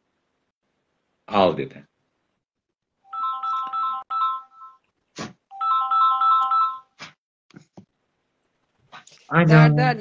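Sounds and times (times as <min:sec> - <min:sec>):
phone ringtone beeping melody: 0:03.1 - 0:04.8, 0:05.5 - 0:07.0.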